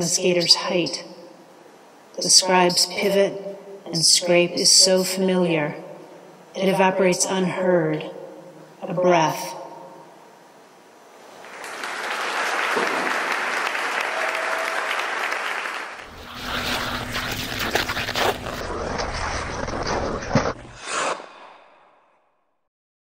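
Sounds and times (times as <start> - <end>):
audience applauding: 11.4 - 17.8
low rumble: 16.1 - 20.8.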